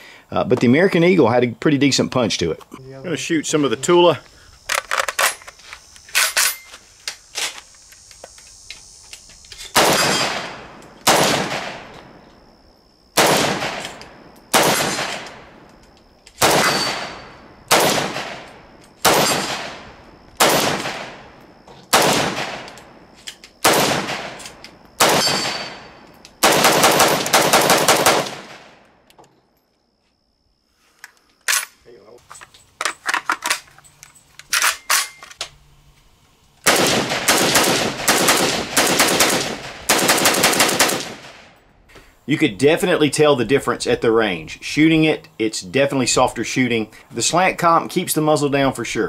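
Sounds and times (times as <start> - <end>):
rifle handling clicks: 4.6 - 6.5
rifle shots: 9.7 - 12.1, 13.2 - 15.6, 16.4 - 21.3, 21.9 - 23.0, 23.6 - 28.8, 36.6 - 41.6.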